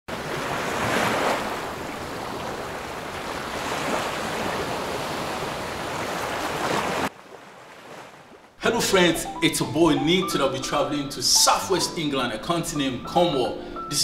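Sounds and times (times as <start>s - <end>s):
sea surf breaking on beach: 0.1s - 8.3s.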